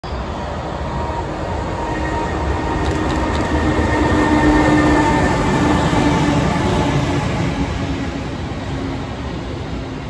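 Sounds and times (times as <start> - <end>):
freight train rumbling: 0.0 - 10.0.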